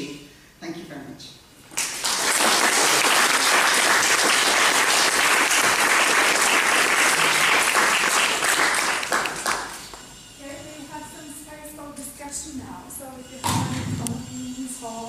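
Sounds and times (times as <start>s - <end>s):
audience applauding: 1.7s - 10.0s.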